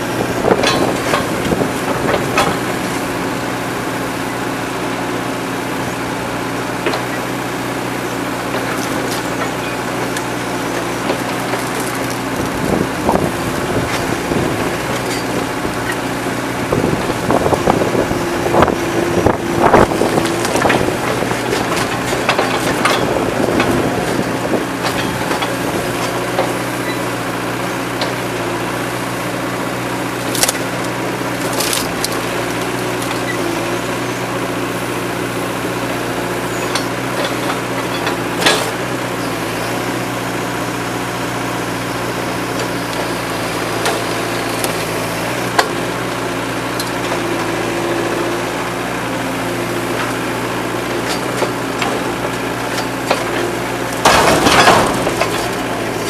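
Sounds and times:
excavator diesel engine running: 0.0 - 56.0
debris knocking on steel dumpster: 54.0 - 55.8.

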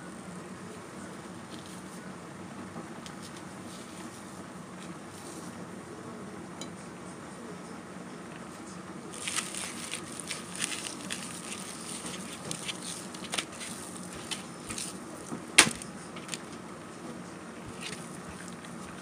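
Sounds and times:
steady low hum: 0.0 - 19.0
pot crackling and ticking: 9.1 - 19.0.

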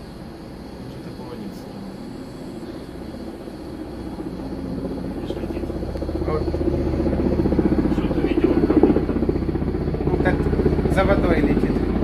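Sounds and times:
helicopter rotor beating: 0.0 - 12.0.

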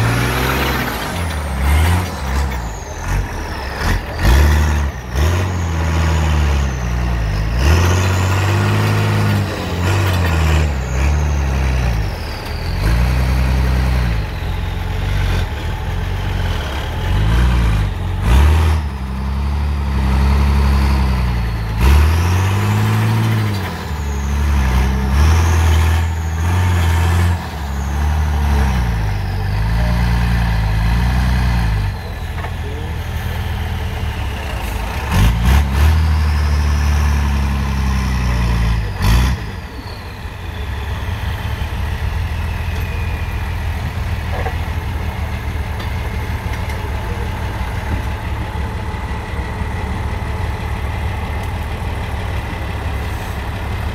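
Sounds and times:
truck engine revving: 0.0 - 53.9.

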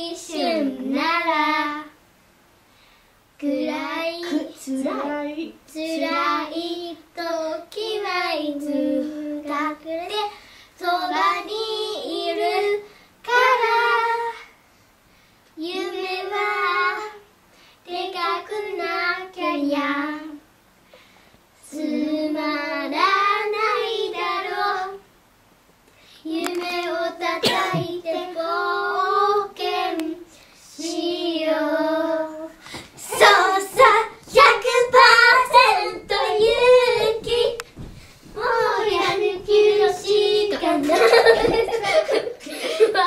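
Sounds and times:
children singing unaccompanied: 26.3 - 30.2, 30.8 - 37.7, 38.3 - 41.9.

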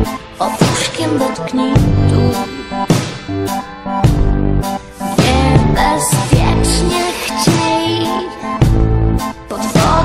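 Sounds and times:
bass notes: 1.8 - 7.0, 8.6 - 10.0.

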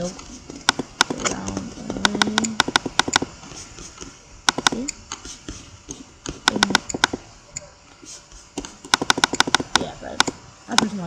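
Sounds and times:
computer mouse clicks: 0.6 - 3.3, 4.5 - 5.2, 6.2 - 7.7, 8.6 - 11.0.

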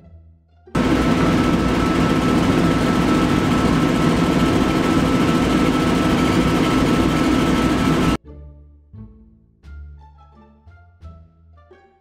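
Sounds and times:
exhaust blower rushing: 0.8 - 8.2
faint whine: 0.8 - 8.2
low hum: 0.8 - 8.2.

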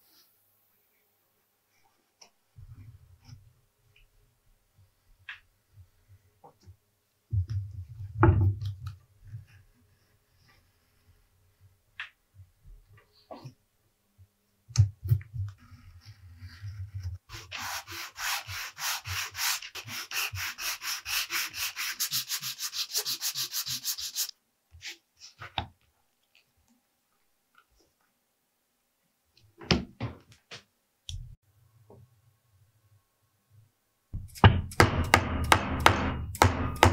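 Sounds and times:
sanding leather edge: 17.3 - 24.3.

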